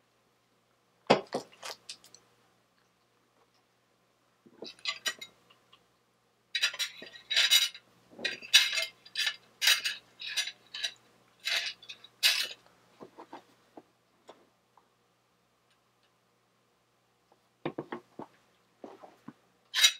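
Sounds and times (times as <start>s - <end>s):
forks scraping on a plate: 6.6s - 12.6s.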